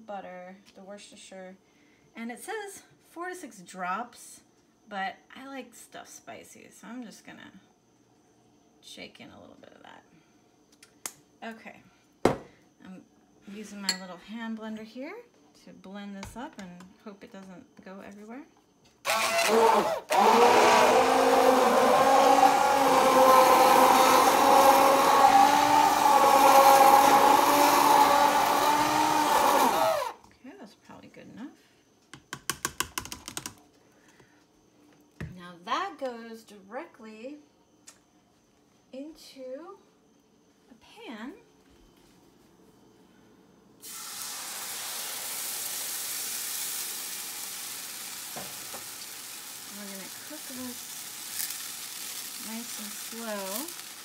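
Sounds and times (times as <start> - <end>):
immersion blender motor whining: 19.0 - 30.2, 43.8 - 54.0.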